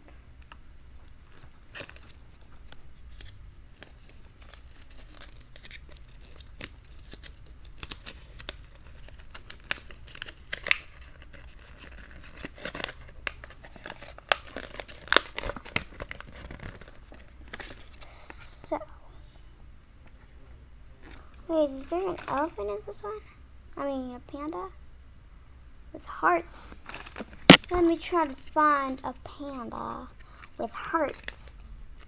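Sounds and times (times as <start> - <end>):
toy packaging crinkling and tearing: 1.1 - 18.1, 21.7 - 22.6, 26.8 - 31.6.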